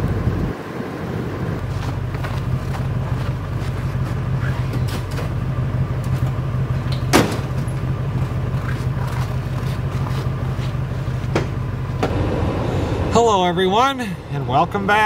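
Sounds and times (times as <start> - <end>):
truck engine idling: 0.0 - 15.0
plastic can clunk in truck bed: 6.9 - 7.7.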